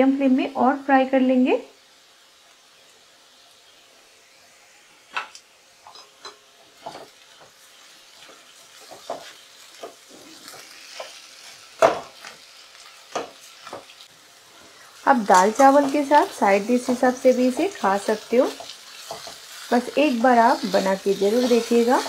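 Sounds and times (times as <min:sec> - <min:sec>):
potatoes sizzling in oil: 0:00.0 - 0:22.0.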